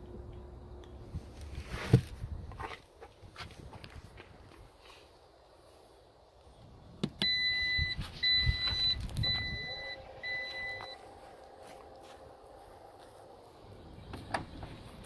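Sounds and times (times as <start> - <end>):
warning chime beeping: 7.2 - 11.9.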